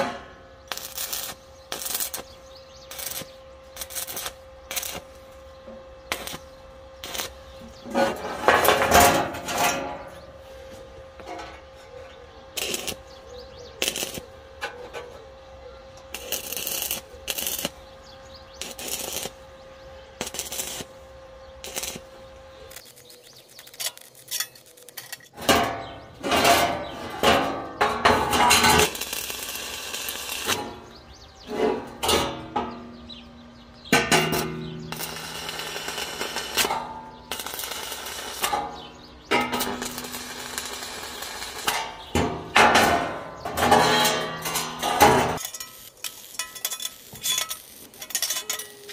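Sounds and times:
steel pieces clanking: 0:07.2 - 0:10.2, 0:22.7 - 0:32.9, 0:33.9 - 0:48.9.

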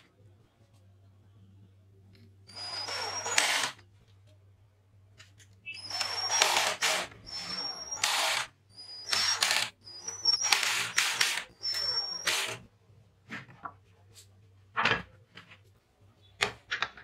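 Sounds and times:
cordless drill driving screws: 0:02.5 - 0:03.8, 0:05.8 - 0:12.6.

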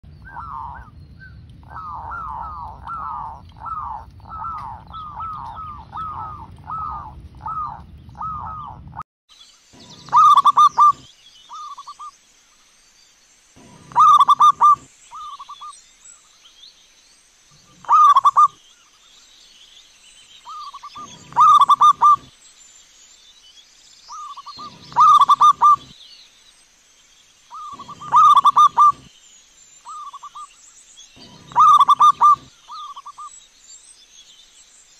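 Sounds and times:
low rumble: 0:00.0 - 0:09.0
doves cooing: 0:00.1 - 0:09.0, 0:09.8 - 0:12.0, 0:13.6 - 0:15.6, 0:17.6 - 0:18.6, 0:20.5 - 0:22.3, 0:24.1 - 0:26.0, 0:27.5 - 0:29.1, 0:31.2 - 0:33.3.

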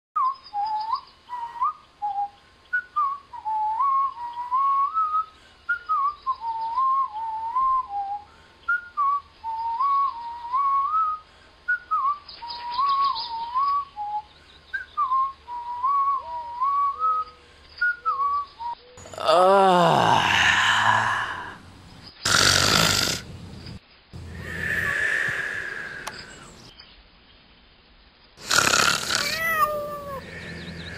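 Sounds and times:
person whistling a tune: 0:00.2 - 0:19.0
loud snore: 0:19.0 - 0:21.6, 0:22.2 - 0:23.3, 0:28.4 - 0:30.9.

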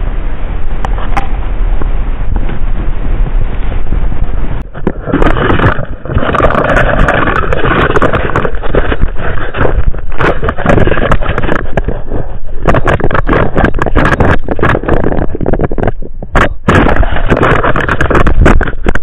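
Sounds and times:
cart scraping over snow: 0:05.0 - 0:15.4.

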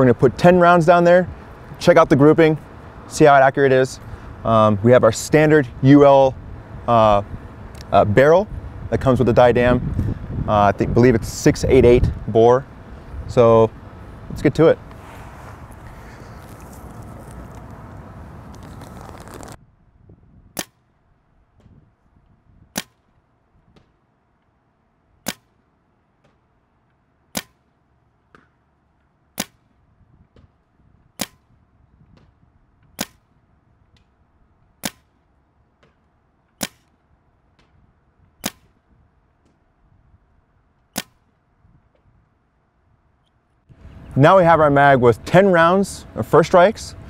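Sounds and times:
steady rushing noise: 0:00.0 - 0:19.6
paintball marker firing: 0:20.6 - 0:20.9, 0:22.7 - 0:24.0, 0:25.2 - 0:25.6, 0:27.3 - 0:28.6, 0:29.4 - 0:29.8, 0:31.2 - 0:31.6, 0:32.2 - 0:34.1, 0:34.8 - 0:37.8, 0:38.4 - 0:38.8, 0:40.9 - 0:41.3.

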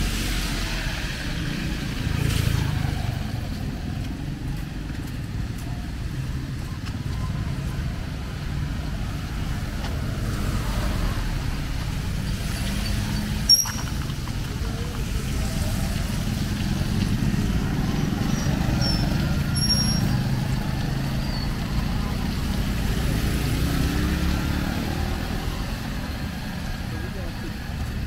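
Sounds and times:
street traffic rumble: 0:00.0 - 0:28.0
faint short high squeaks: 0:12.8 - 0:14.0, 0:18.8 - 0:20.1.

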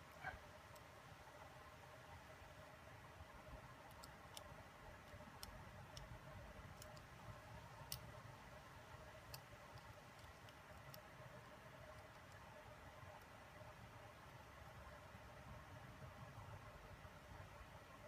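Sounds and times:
small plastic and metal parts clicking: 0:03.7 - 0:08.2, 0:09.0 - 0:12.5.

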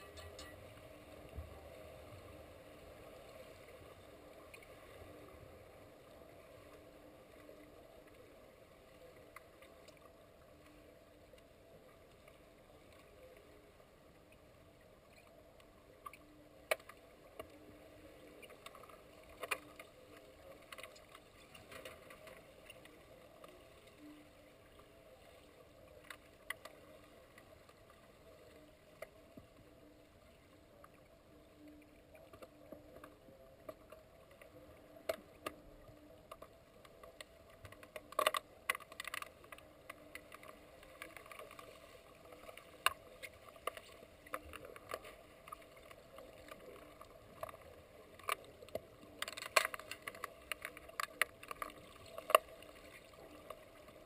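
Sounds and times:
low hum: 0:00.0 - 0:02.8.

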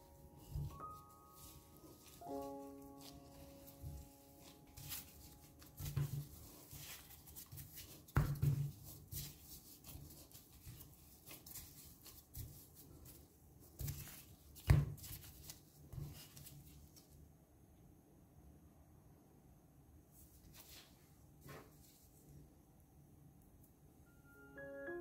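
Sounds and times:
hands and utensils handling food: 0:00.0 - 0:17.2.

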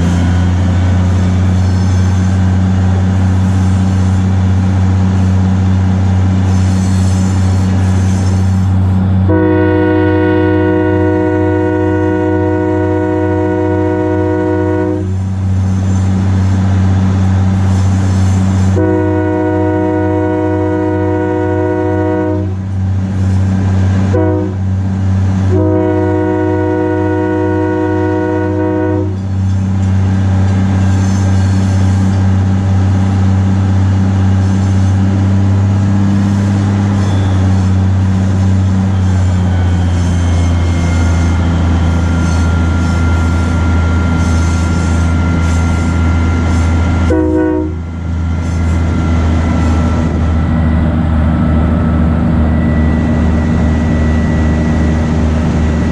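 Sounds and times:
diesel engine running: 0:00.0 - 0:55.9
locomotive horn blasts: 0:09.2 - 0:15.3, 0:18.7 - 0:22.8, 0:24.0 - 0:24.8, 0:25.4 - 0:29.4, 0:36.9 - 0:50.2.

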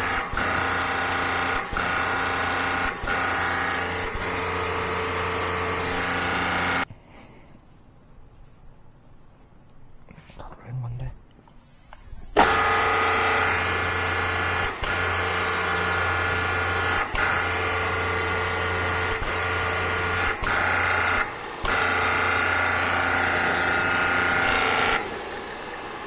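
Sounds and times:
pressure washer spraying water: 0:00.0 - 0:06.8, 0:12.3 - 0:26.0.

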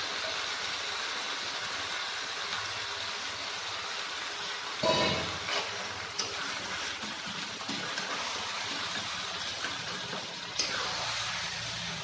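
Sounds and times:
chicken sizzling in oil: 0:00.0 - 0:12.0
metal spatula scraping pan: 0:04.8 - 0:07.3.

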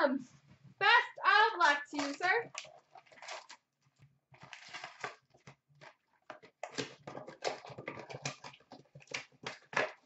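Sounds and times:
paper and cardboard rustling: 0:04.3 - 0:10.0.

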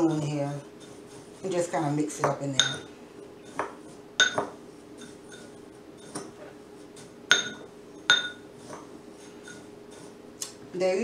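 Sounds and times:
spoon stirring breadcrumbs: 0:00.0 - 0:07.7, 0:08.4 - 0:10.2
spoon clinking on ceramic bowl: 0:02.2 - 0:02.9, 0:03.5 - 0:06.3, 0:07.3 - 0:08.4.

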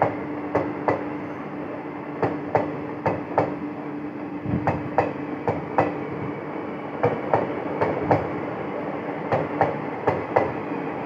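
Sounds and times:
train wheels clacking over rail joints: 0:00.0 - 0:01.1, 0:02.2 - 0:03.6, 0:04.6 - 0:06.0, 0:07.0 - 0:08.4, 0:09.3 - 0:10.6
train rumble: 0:00.0 - 0:11.0.

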